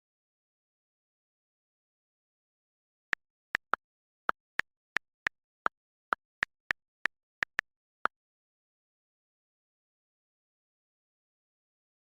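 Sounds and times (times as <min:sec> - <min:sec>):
phone keyboard key clicks: 0:03.6 - 0:03.8, 0:07.4 - 0:07.7.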